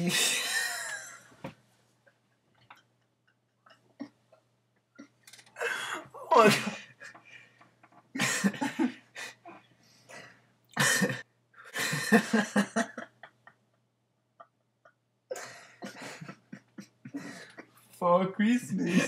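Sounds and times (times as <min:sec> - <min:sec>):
person coughing: 0:10.8 - 0:11.2.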